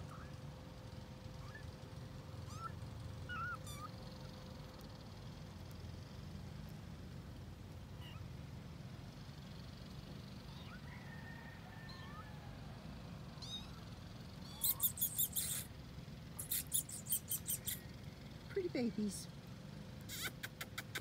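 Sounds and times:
faint animal squeaks: 0.0s - 0.5s, 1.3s - 4.4s, 8.0s - 8.3s, 10.3s - 12.6s, 13.3s - 15.8s, 16.4s - 19.2s, 20.0s - 21.0s
rapid animal chirping: 1.3s - 1.8s, 2.4s - 4.4s, 8.0s - 8.3s, 10.5s - 10.9s, 13.4s - 15.8s, 16.4s - 18.0s, 20.0s - 21.0s.

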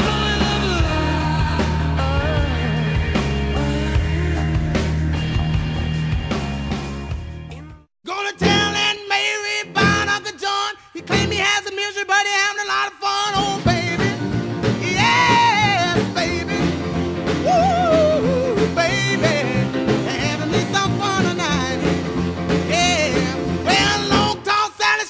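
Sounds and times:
person singing: 0.0s - 5.4s, 7.5s - 22.0s, 22.7s - 25.0s
band accompaniment: 0.0s - 9.0s, 11.1s - 11.5s, 13.4s - 24.6s.

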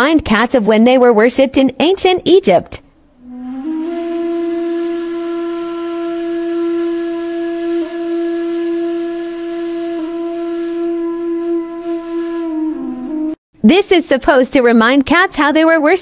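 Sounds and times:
wind instrument long note: 3.2s - 13.4s.

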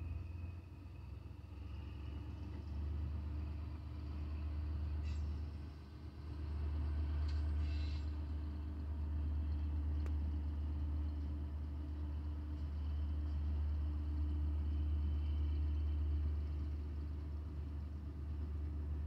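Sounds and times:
diesel locomotive engine rumbling: 0.0s - 19.0s.

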